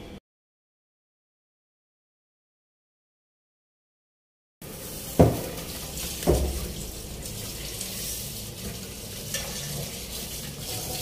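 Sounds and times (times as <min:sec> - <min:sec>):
tap water running into a pot: 0:04.6 - 0:11.0
hand swirling rice grains: 0:04.8 - 0:11.0.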